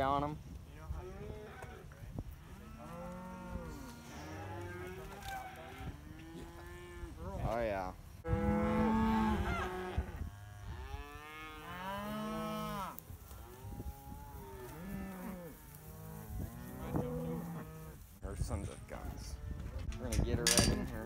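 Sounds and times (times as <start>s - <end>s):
cattle mooing: 2.5s - 7.2s, 8.3s - 18.0s.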